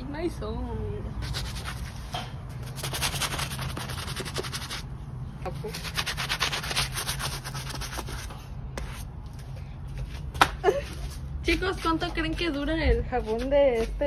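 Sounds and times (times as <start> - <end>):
bristle brush scrubbing a sneaker: 1.2 - 4.9, 5.6 - 9.1.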